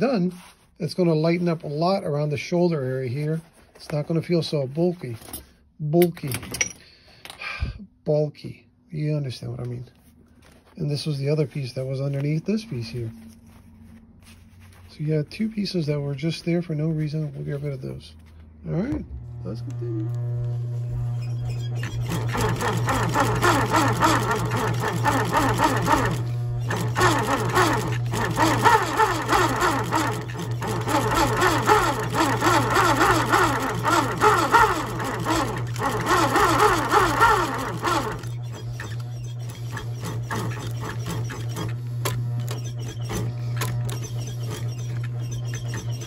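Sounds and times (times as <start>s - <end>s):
sewing machine motor hum: 18.2s - 46.0s
sewing machine stitching: 19.4s - 46.0s.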